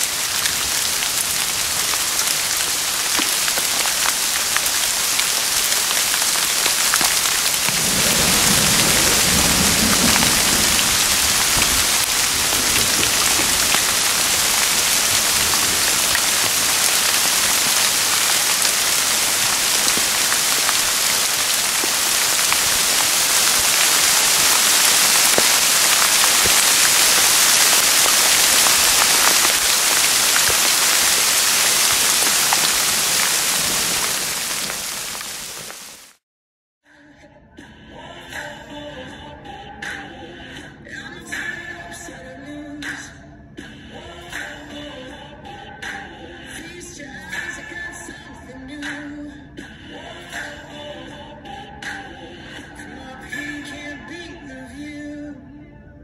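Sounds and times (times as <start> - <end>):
rain on leaves and grass: 0.0 - 36.2.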